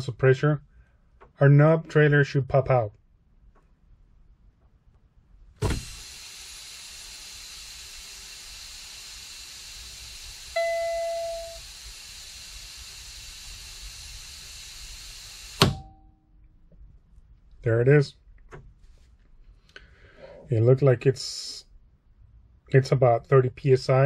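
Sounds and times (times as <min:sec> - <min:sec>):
air supply knob popping out: 0:05.6 - 0:06.0, 0:15.6 - 0:15.9
air brake hissing: 0:05.6 - 0:15.8
dash warning tone beeping: 0:10.6 - 0:11.6.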